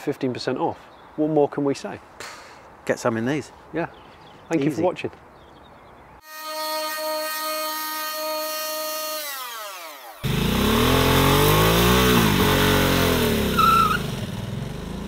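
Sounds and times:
electric motor whine: 6.5s - 13.2s
engine revving: 9.4s - 15.0s
high squeal: 13.5s - 14.1s.

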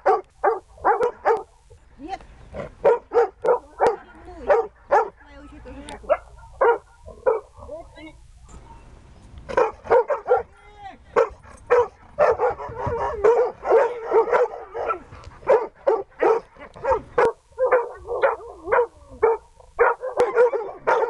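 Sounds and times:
dog barking and yelping: 0.0s - 1.5s, 2.8s - 5.2s, 6.0s - 7.8s, 9.5s - 10.5s, 11.2s - 21.0s.

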